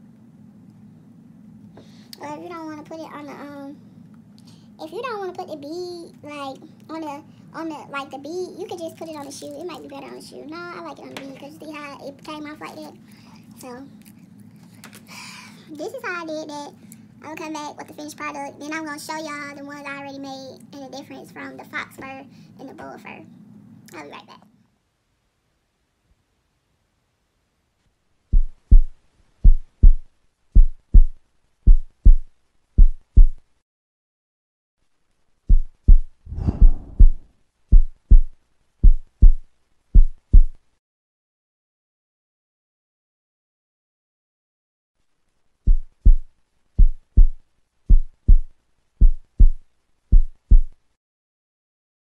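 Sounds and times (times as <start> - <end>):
heartbeat double thumps: 28.3 - 30.0, 30.6 - 33.4, 35.5 - 40.6, 45.7 - 50.8.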